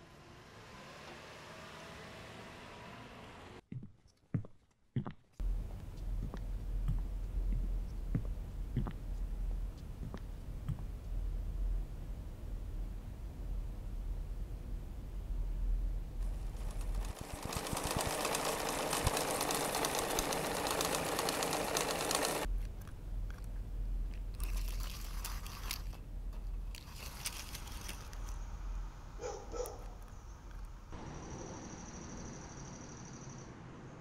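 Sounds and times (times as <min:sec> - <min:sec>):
sewing machine rattling: 0:16.2 - 0:22.5.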